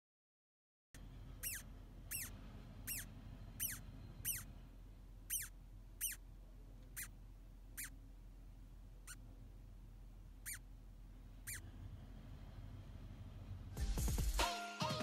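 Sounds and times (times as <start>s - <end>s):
larva squeaking in cocoon: 1.4s - 4.5s, 5.3s - 6.2s, 6.9s - 7.2s, 7.8s - 8.0s, 9.0s - 9.2s, 10.4s - 10.7s, 11.4s - 11.7s.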